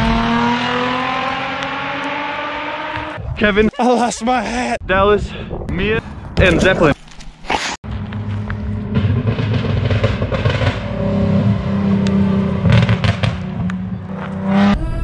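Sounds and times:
vehicle engine revving: 0:00.0 - 0:03.2, 0:07.8 - 0:14.8.

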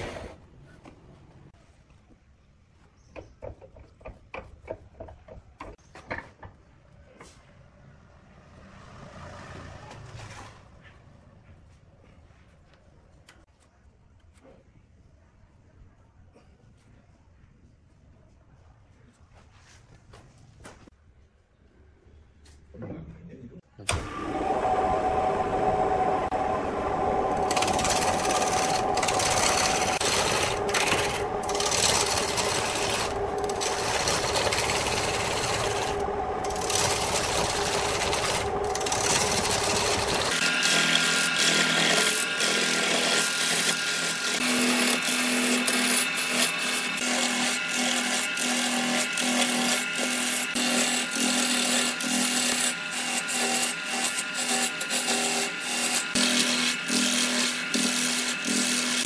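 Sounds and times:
wood lathe motor hum: 0:23.9 - 0:59.0
gouge scraping spinning log: 0:27.3 - 0:59.0.

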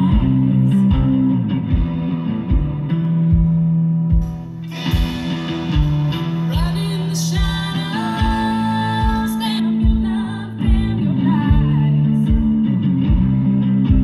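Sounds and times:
person singing: 0:00.0 - 0:01.4, 0:06.1 - 0:13.2
live band playing: 0:00.0 - 0:10.2
kick drum beating: 0:00.0 - 0:14.0.

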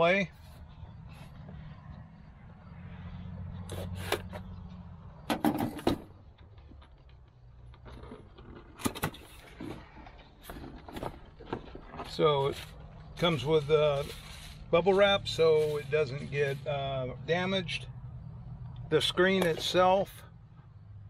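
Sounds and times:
cardboard box scraping and rustling: 0:07.9 - 0:14.7.

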